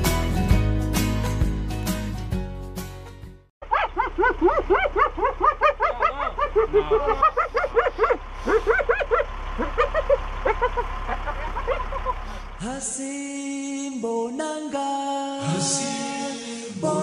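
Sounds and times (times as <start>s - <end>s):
animal yelping: 3.7s - 12.3s.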